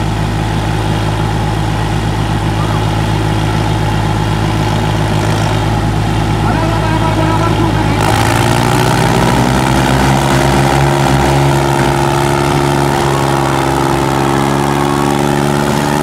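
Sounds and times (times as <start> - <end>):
tractor engines at full throttle: 0.0 - 16.0.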